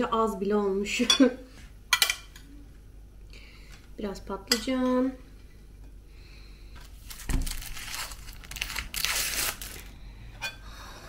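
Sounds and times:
crinkling and rustling: 6.8s - 9.9s.

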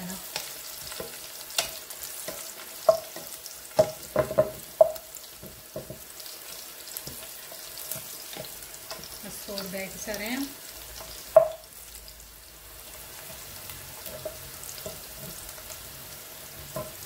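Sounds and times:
spatula stirring in pan: 0.0s - 12.0s, 12.7s - 17.0s
onions sizzling in oil: 0.0s - 17.0s
spatula knocking against pan: 2.3s - 6.1s, 11.3s - 11.6s.

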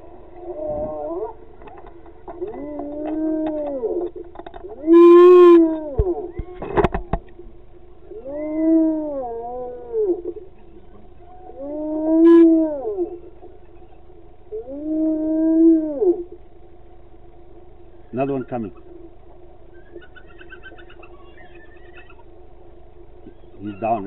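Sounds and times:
hyena whoop calls: 4.7s - 6.6s, 8.1s - 10.3s, 19.7s - 22.3s.

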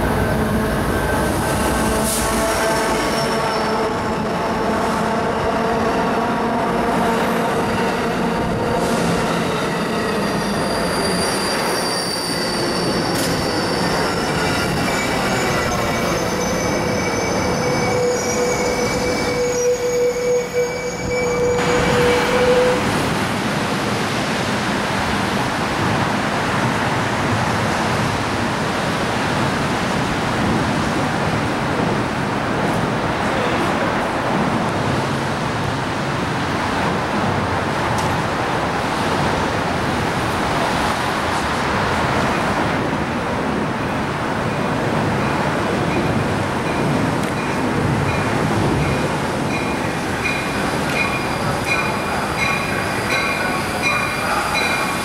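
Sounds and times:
train wheels squealing: 2.2s - 3.8s, 9.3s - 22.9s, 47.4s - 55.0s
distant train approaching: 44.0s - 55.0s.

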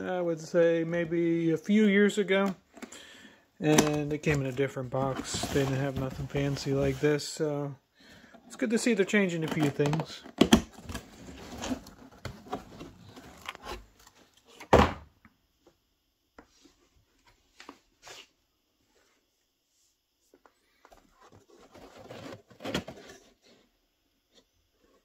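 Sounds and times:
cardboard rustling and scraping: 3.7s - 7.3s, 8.8s - 14.6s, 20.8s - 23.7s.

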